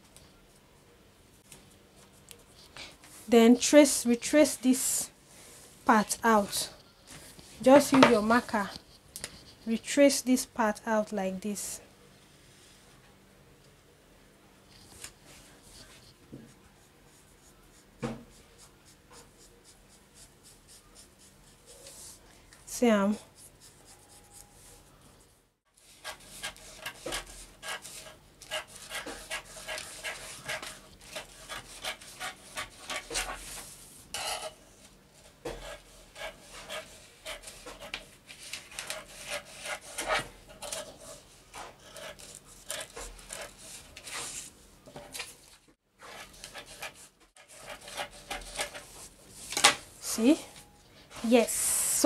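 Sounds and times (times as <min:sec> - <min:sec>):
scissors cutting paper: 0:26.0 - 0:33.4, 0:35.6 - 0:41.0, 0:46.0 - 0:48.9.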